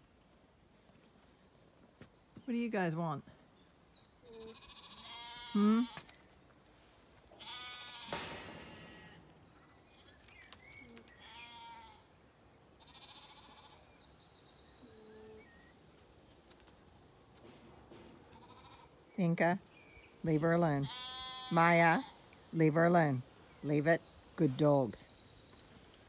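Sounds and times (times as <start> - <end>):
birdsong chirps: 1.5 - 6.0, 9.3 - 16.4, 17.9 - 26.0
livestock calls: 4.2 - 6.2, 7.3 - 10.2, 10.8 - 12.1, 12.8 - 14.0, 20.8 - 22.2.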